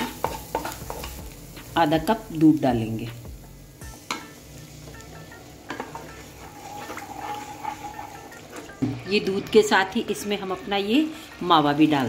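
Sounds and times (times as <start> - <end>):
milk sizzling in a pan: 0.0 - 12.0
wooden spatula scraping pan: 5.8 - 8.8.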